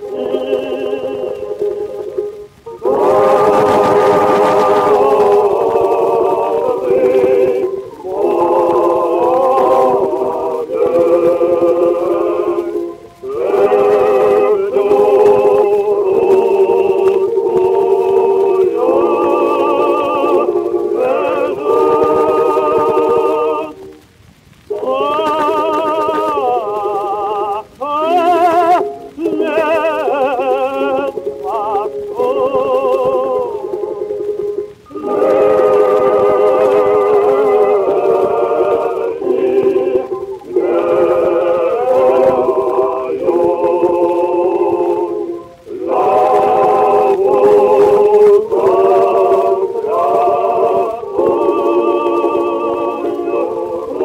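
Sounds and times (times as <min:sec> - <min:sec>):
vocal quartet singing on old record: 0:00.0 - 0:54.0.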